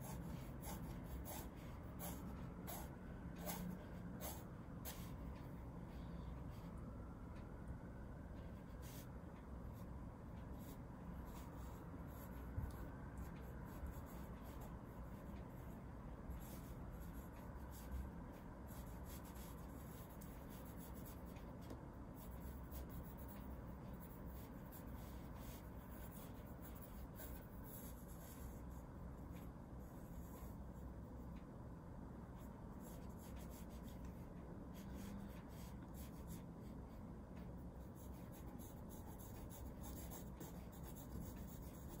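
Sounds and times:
pencil scratching on paper: 0.0s - 5.2s, 10.6s - 28.8s, 32.4s - 37.0s, 37.6s - 42.0s.

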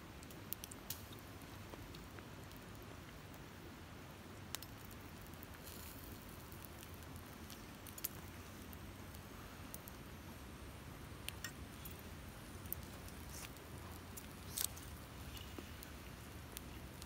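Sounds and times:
campfire crackling: 0.0s - 17.0s
fire popping: 0.0s - 17.0s.

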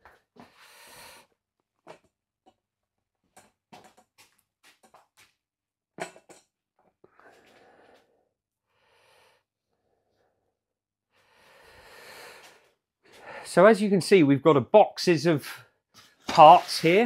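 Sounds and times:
soft rustling or scraping: 16.0s - 17.0s.

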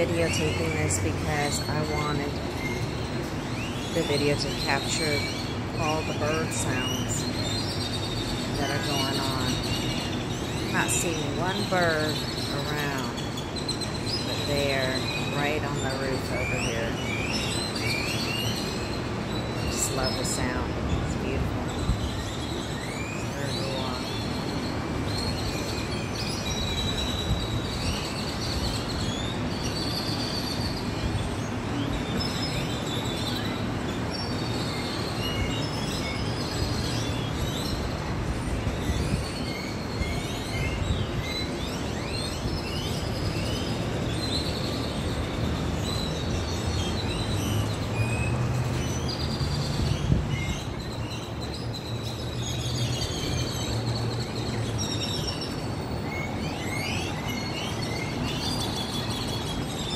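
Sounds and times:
birds chirping: 0.0s - 59.9s
city traffic rumble: 0.0s - 59.9s.

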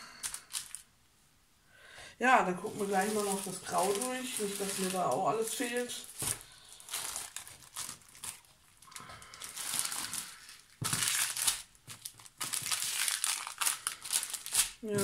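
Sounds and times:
plastic bags crinkling: 0.1s - 0.9s, 2.4s - 15.0s.

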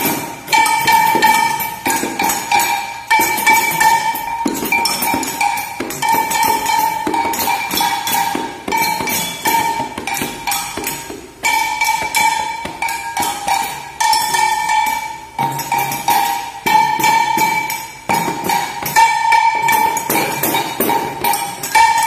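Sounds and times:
metallic ringing: 0.0s - 22.0s.

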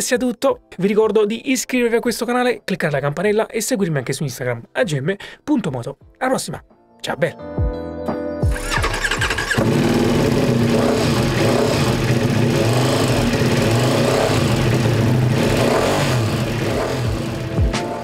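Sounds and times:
motorcycle engine revving hard: 8.5s - 17.6s.

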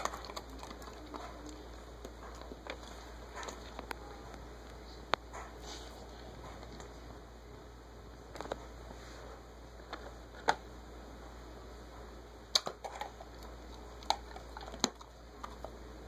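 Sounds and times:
dog chewing: 0.0s - 4.1s, 12.5s - 15.8s.

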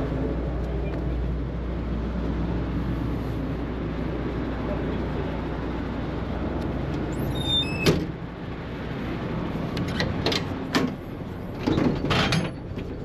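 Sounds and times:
engine rumbling: 0.0s - 13.0s
high squeal: 7.1s - 8.0s.

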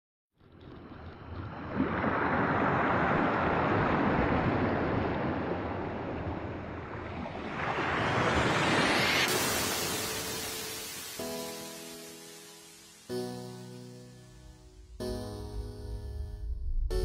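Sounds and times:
waves washing on gravel beach: 6.6s - 12.1s.

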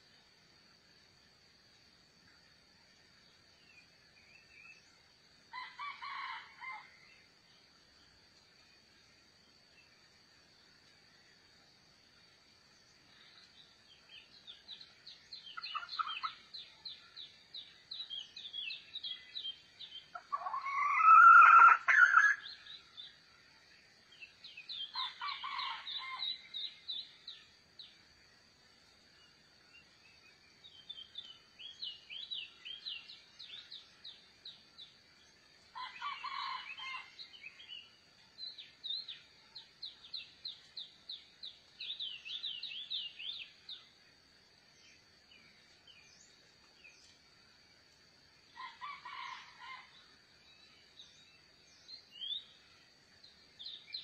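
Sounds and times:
high insect hum: 0.0s - 54.0s
small birds chirping: 2.2s - 54.0s
rooster crowing: 5.6s - 6.9s, 20.3s - 22.4s, 25.0s - 26.3s, 35.8s - 37.2s.

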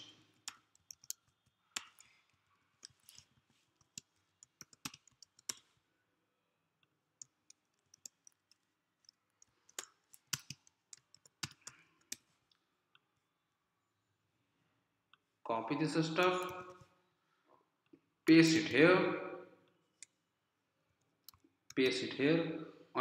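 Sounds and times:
keyboard typing clicks: 0.0s - 5.7s, 7.2s - 12.3s, 16.3s - 16.9s.

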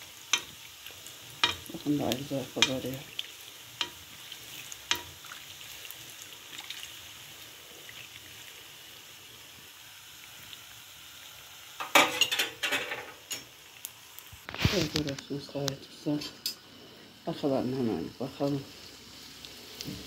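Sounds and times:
dough sizzling in hot oil: 0.0s - 20.0s
metal spoon clinking on pan: 1.4s - 1.7s, 2.6s - 2.9s, 11.8s - 13.5s.

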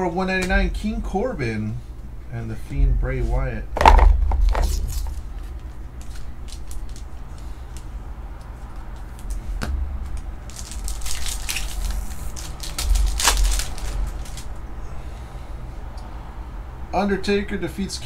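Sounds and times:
plastic and foil crinkling: 4.5s - 9.4s, 10.0s - 14.6s.

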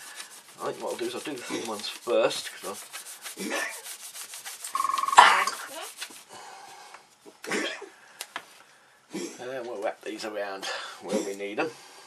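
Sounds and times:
hands rubbing putty on table: 0.0s - 6.3s
short beep: 4.8s - 5.2s.

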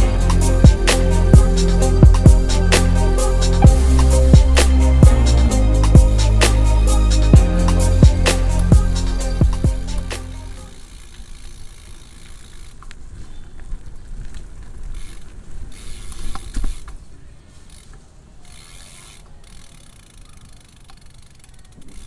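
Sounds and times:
bike hub ratcheting clicks: 9.8s - 13.0s, 14.8s - 17.0s, 17.7s - 22.0s.

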